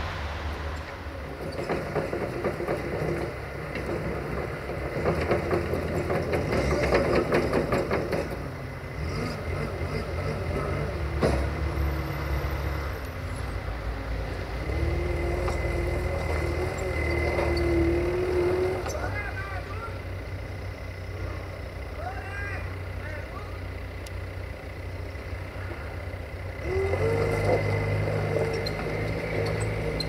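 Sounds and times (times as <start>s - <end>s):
skid steer loader engine running: 0.0s - 30.0s
loader bucket clattering: 1.3s - 8.6s, 14.9s - 19.7s.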